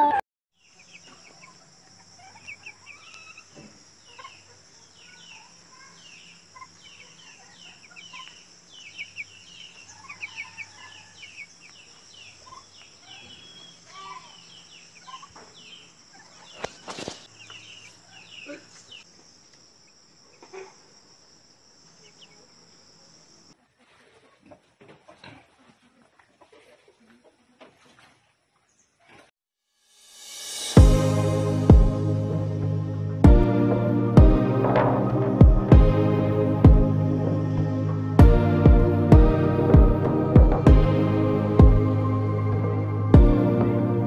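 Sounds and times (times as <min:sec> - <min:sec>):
steady high hiss: 0:30.0 - 0:35.4.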